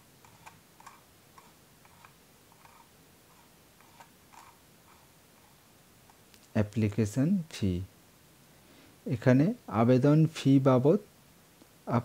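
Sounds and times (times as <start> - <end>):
mouse scroll wheel clicking: 0.2 - 5.6.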